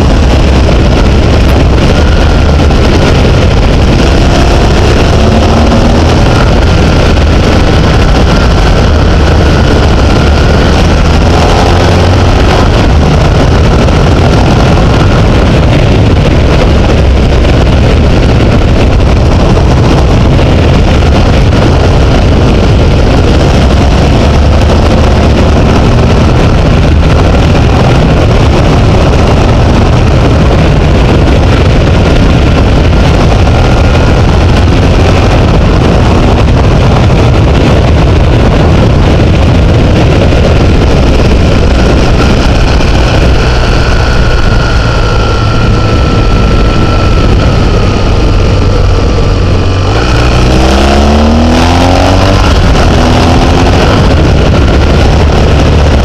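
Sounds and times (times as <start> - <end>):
vehicle engine accelerating: 0.0 - 56.0
wind rushing on microphone: 0.0 - 56.0.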